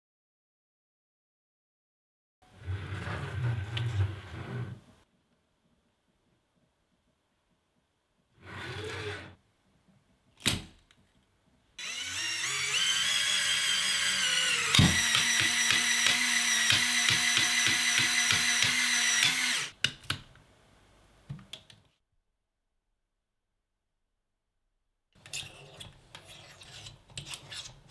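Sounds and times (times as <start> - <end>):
toy train motor whining: 11.8 - 19.7.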